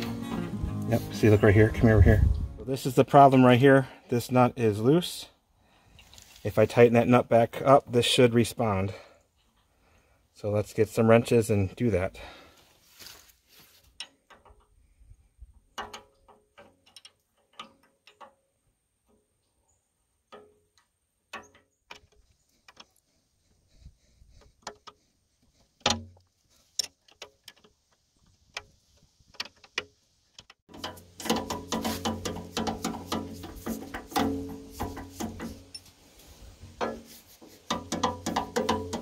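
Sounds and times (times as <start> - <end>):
music: 0.0 - 2.7
wrenches clicking against nut: 15.7 - 18.5, 25.8 - 28.7, 29.3 - 36.0, 37.6 - 39.0
metal clank: 30.7 - 36.0, 37.7 - 39.0.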